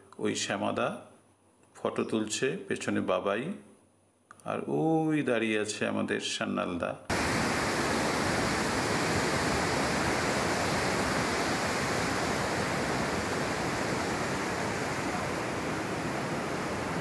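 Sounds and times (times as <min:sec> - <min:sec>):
river rushing: 0:07.1 - 0:17.0.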